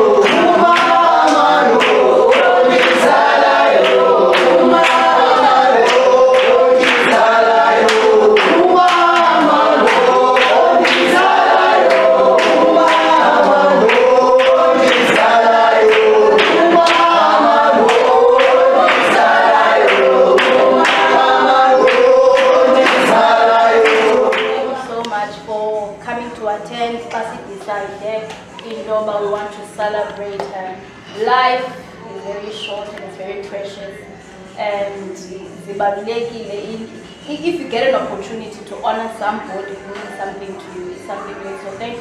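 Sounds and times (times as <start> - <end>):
steady sharp beat: 0.0 - 24.9
choir singing gospel: 0.0 - 42.0.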